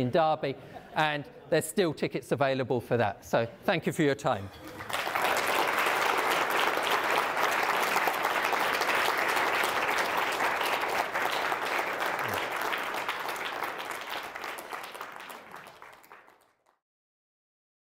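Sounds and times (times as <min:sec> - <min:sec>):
audience applauding: 0:04.6 - 0:16.8.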